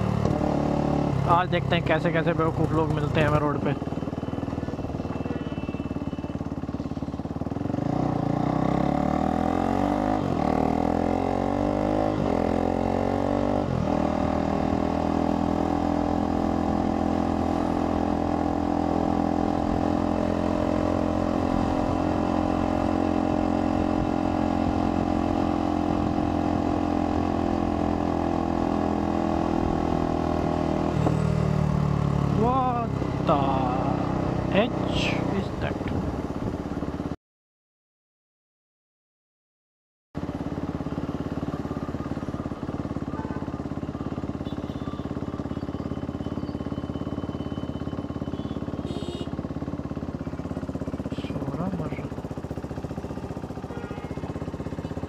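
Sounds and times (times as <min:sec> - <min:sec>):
motorcycle engine accelerating: 0:00.0 - 0:37.2, 0:40.2 - 0:55.0.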